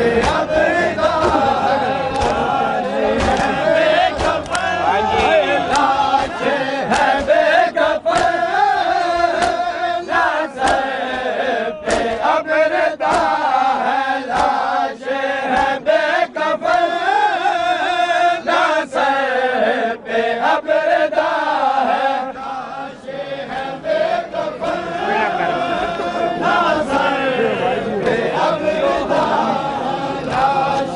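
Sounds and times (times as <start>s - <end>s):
men chanting in unison: 0.0s - 30.9s
hands slapping bare chests: 0.2s - 0.5s, 1.2s - 1.5s, 2.1s - 2.5s, 3.1s - 7.4s, 8.1s - 8.5s, 9.2s - 9.6s, 10.6s - 12.3s, 13.0s - 13.4s, 14.3s - 14.7s, 15.5s - 15.8s.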